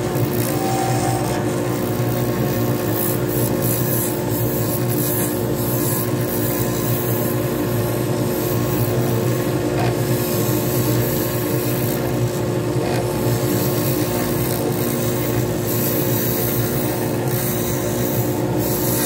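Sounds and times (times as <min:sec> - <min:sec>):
lathe motor hum: 0:00.0 - 0:19.0
turning tool scraping hiss: 0:13.3 - 0:19.0.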